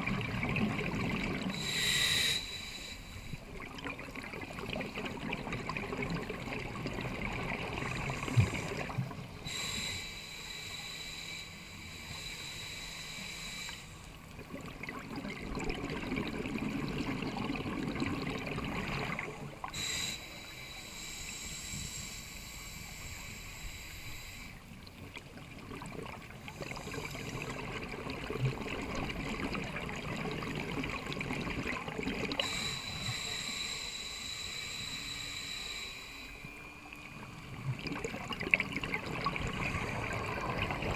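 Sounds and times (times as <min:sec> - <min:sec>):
exhaled bubbles gurgling underwater: 0:00.0 - 0:10.0, 0:14.0 - 0:20.5, 0:24.6 - 0:33.7, 0:36.2 - 0:40.9
regulator hissing inhale: 0:01.4 - 0:03.5, 0:07.8 - 0:14.2, 0:19.6 - 0:24.8, 0:26.4 - 0:27.8, 0:32.3 - 0:36.9.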